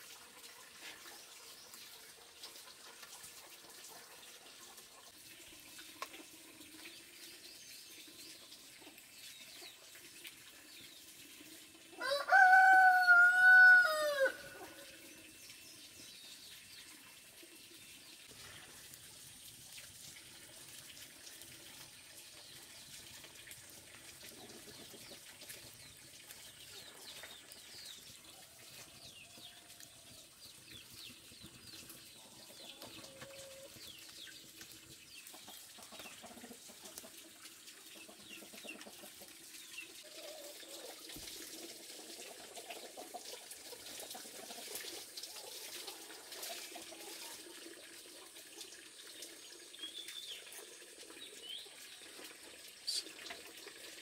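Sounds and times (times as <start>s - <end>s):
chickens clucking: 24.2s - 28.0s, 30.8s - 41.0s, 42.0s - 48.3s
small birds chirping: 24.4s - 36.6s, 52.8s - 53.2s.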